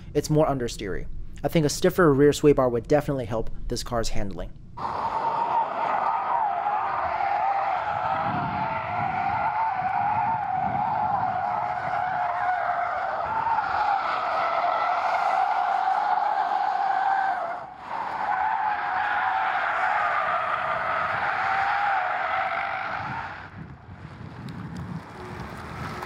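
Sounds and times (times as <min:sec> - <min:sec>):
tyres squealing on asphalt: 0:04.8 - 0:23.7.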